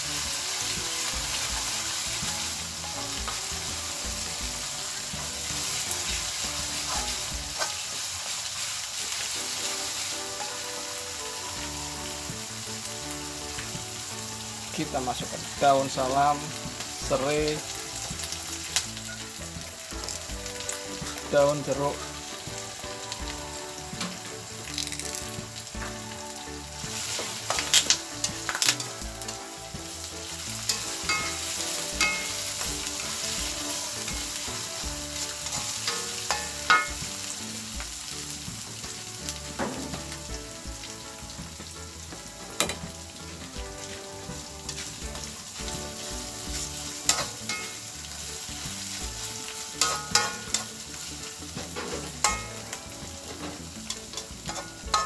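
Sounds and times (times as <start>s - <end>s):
spice paste sizzling in hot oil: 0.0s - 55.0s
metal spatula scraping pan: 6.8s - 8.0s, 30.7s - 33.4s, 34.0s - 37.0s, 47.1s - 47.8s, 49.5s - 50.8s, 51.6s - 55.0s.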